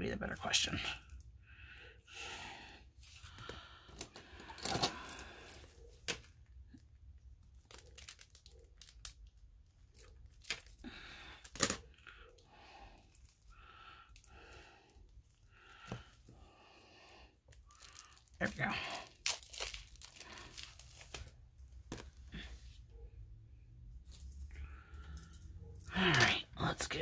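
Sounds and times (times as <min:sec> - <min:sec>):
plastic wrap crinkling and tearing: 0:07.2 - 0:11.9, 0:17.5 - 0:22.2.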